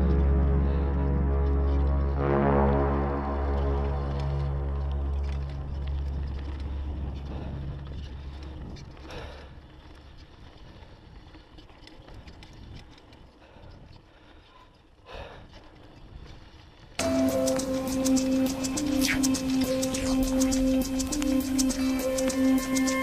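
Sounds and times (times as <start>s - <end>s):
background music: 0.0s - 8.4s, 17.0s - 23.0s
mountain bike rattle and tyre noise: 0.0s - 23.0s.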